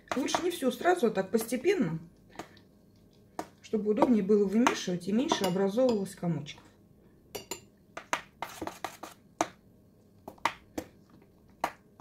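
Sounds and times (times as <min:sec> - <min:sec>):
fork clinking against metal bowl: 0:05.3 - 0:06.0, 0:07.4 - 0:07.7.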